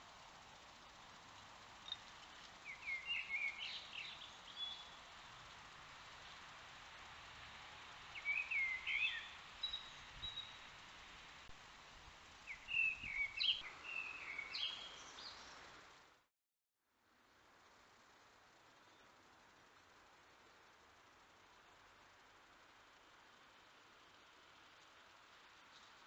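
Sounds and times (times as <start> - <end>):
microphone hiss: 0.0 - 16.3, 16.9 - 26.0
songbird chirping: 1.8 - 5.6, 8.1 - 10.7, 12.4 - 15.8.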